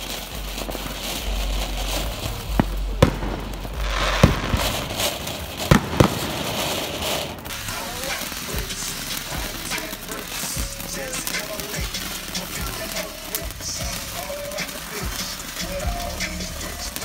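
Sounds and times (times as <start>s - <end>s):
firework hissing: 0.0s - 17.0s
sharp firework pops: 0.0s - 17.0s.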